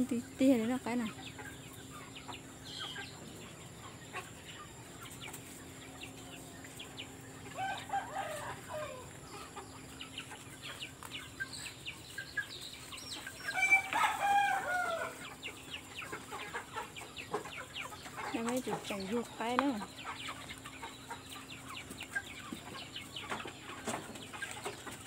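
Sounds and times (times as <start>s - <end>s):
chickens clucking: 0.0s - 25.0s
rooster crowing: 7.6s - 9.1s, 13.5s - 15.2s.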